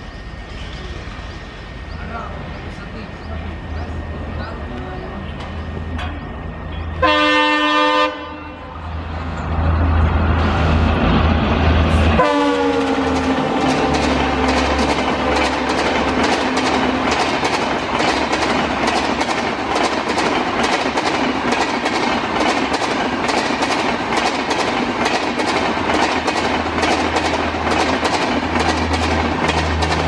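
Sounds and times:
train wheels clickety-clack: 11.8s - 30.0s.

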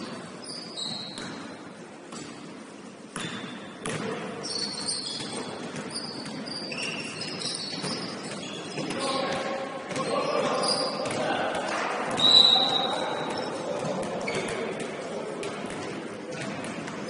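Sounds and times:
sneaker squeaks on hardwood: 0.4s - 1.6s, 3.2s - 9.3s, 10.0s - 11.2s, 12.1s - 13.6s, 14.2s - 14.6s
basketball bouncing: 3.1s - 4.2s, 5.1s - 7.0s, 11.0s - 12.3s, 13.2s - 17.0s.

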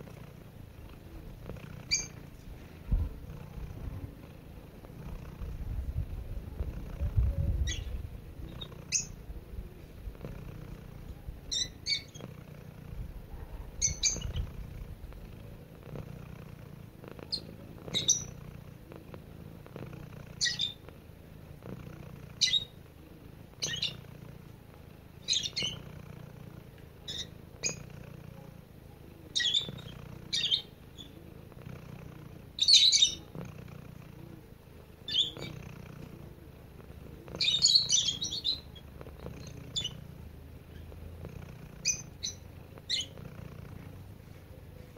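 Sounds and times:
cat purring: 0.0s - 44.9s
bird chirps: 11.5s - 12.2s, 13.8s - 14.4s, 17.3s - 18.4s, 20.4s - 20.8s, 23.6s - 24.0s, 25.2s - 25.8s, 29.4s - 31.2s, 35.1s - 35.6s, 37.4s - 38.7s, 39.4s - 40.0s, 41.8s - 43.2s.

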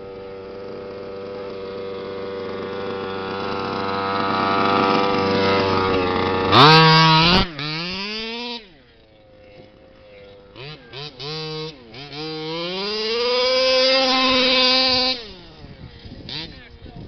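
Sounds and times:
rc truck engine idling and revving: 0.0s - 17.0s.

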